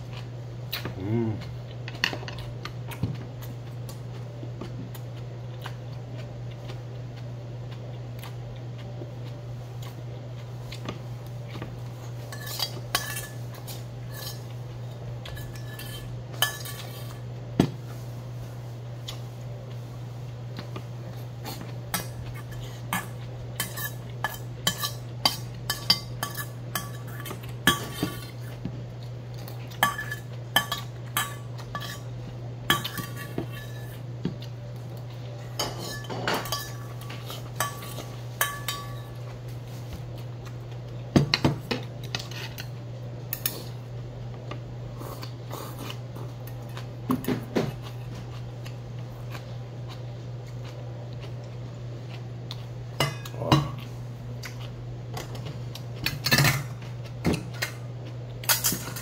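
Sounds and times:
steady low hum: 0.0s - 59.0s
metal spoon scraping a bowl: 12.3s - 13.4s, 14.1s - 14.5s, 15.3s - 17.2s, 21.9s - 28.3s, 29.8s - 32.1s, 32.7s - 34.0s, 35.6s - 39.1s.

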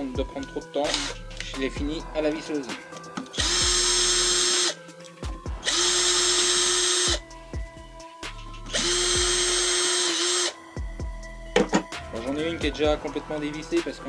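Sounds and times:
cordless drill whining: 0.9s - 1.5s, 3.3s - 4.8s, 5.6s - 7.3s, 8.6s - 10.6s.

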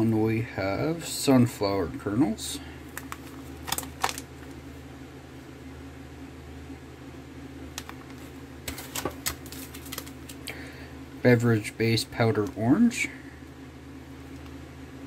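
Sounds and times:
low room hum: 0.0s - 15.0s
plastic packets crinkling: 2.9s - 4.6s, 7.8s - 10.5s.

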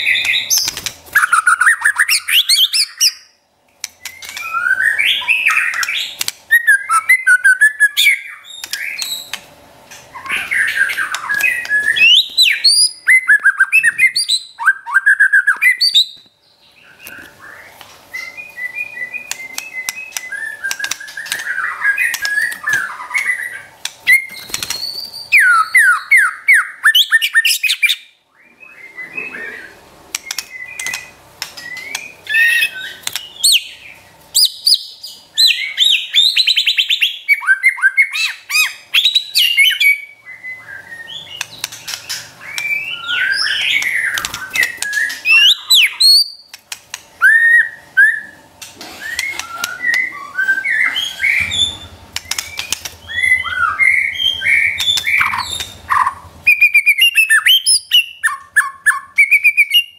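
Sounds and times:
songbird whistles and trills: 0.0s - 9.4s, 10.1s - 46.6s, 47.2s - 59.9s.

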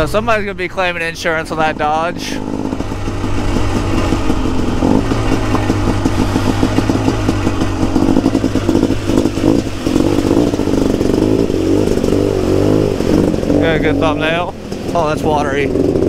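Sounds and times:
two-stroke motorcycle engine revving: 0.0s - 16.0s.

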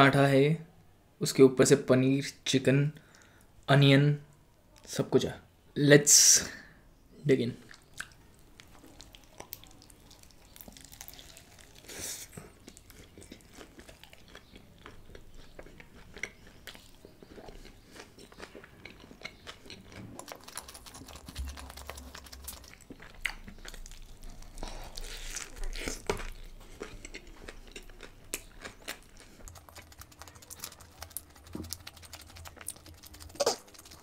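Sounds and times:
person chewing food: 7.6s - 34.0s.

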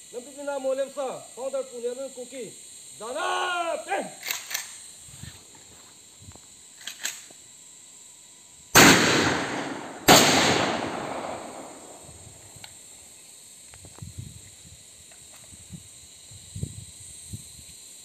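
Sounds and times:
rifle shots with long echo: 8.8s - 12.1s.

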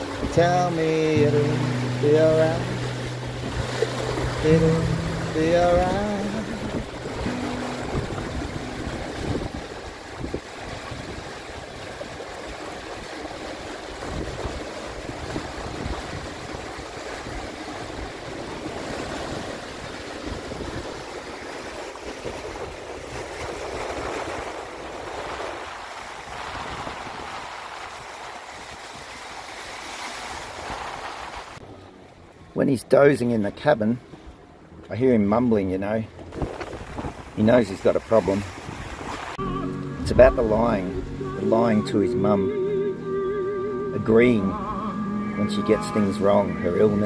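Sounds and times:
rough sea churning along hulls: 0.0s - 47.0s
wind noise: 2.7s - 12.2s, 14.0s - 21.2s, 22.0s - 28.9s, 36.3s - 37.6s.

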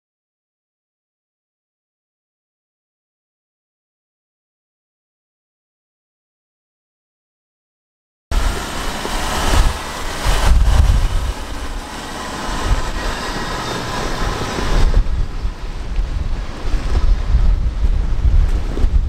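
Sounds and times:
broad rushing hiss: 8.3s - 15.0s
wind buffeting microphone: 8.3s - 19.0s.

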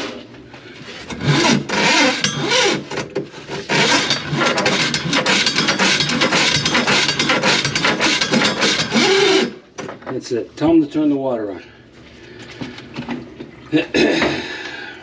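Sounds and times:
drain line rattling and scraping: 0.9s - 10.7s.

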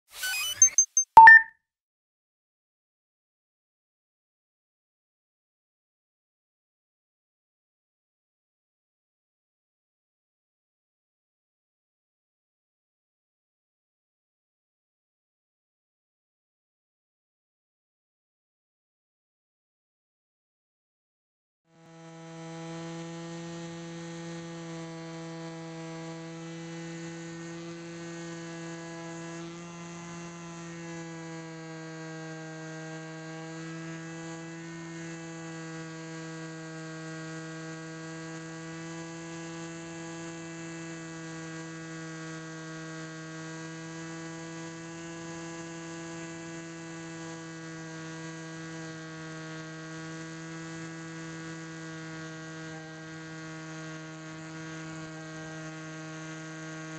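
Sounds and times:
electric motor and propeller buzzing: 21.8s - 56.9s.

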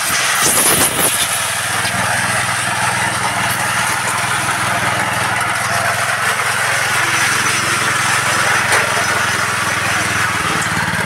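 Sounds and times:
small petrol engine running: 0.0s - 11.0s.

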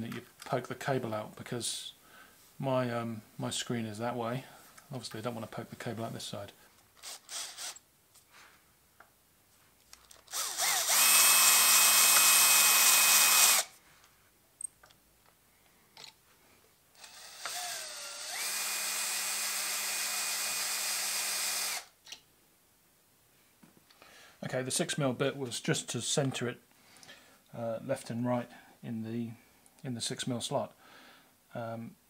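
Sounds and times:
cordless drill whining: 7.0s - 7.8s, 10.3s - 13.7s, 17.0s - 22.0s.

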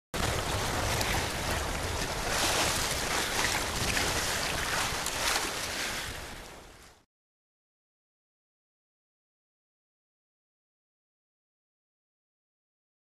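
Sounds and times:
wind rumbling on microphone: 0.2s - 7.0s
water rushing along hull: 0.2s - 7.1s.

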